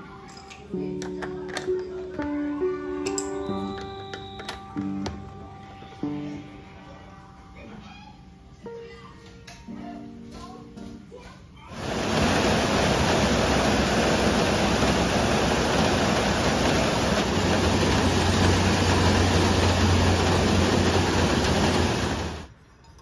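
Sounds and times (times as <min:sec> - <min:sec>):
heavy rain falling: 0:11.8 - 0:22.5.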